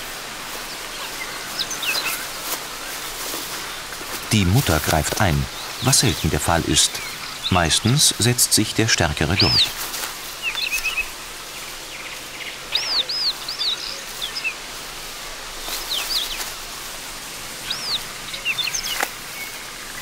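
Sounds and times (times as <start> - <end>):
faint marsh background: 0.0 - 20.0
nestlings begging chirps: 0.9 - 2.6, 3.5 - 9.8, 17.6 - 19.7.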